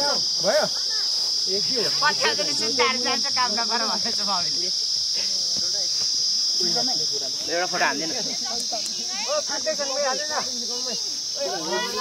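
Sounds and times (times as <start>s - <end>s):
insect chorus shrilling: 0.0s - 12.0s
people calling out: 8.9s - 12.0s.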